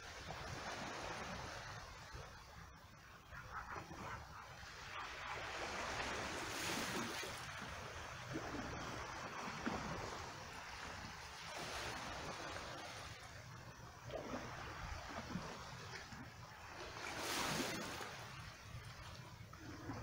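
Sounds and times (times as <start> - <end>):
water trickling and splashing: 0.0 - 20.0
waves lapping on rocky shore: 0.0 - 20.0.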